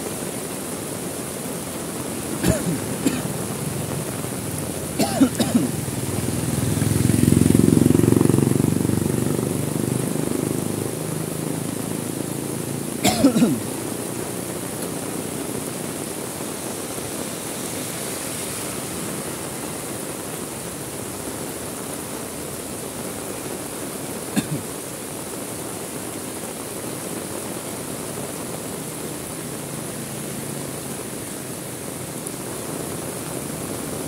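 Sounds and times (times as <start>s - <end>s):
heavy rain falling: 0.0s - 34.0s.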